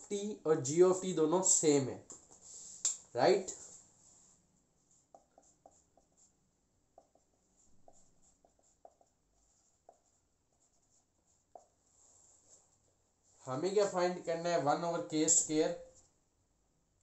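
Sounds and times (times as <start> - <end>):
marker squeaking on whiteboard: 4.9 - 11.8.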